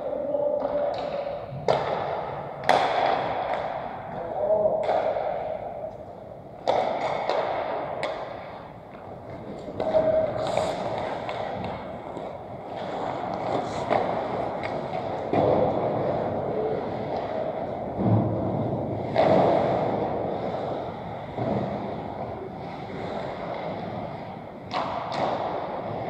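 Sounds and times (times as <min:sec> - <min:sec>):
hockey sticks and puck clacking: 0:00.0 - 0:26.0
skate blades scraping ice: 0:06.6 - 0:26.0.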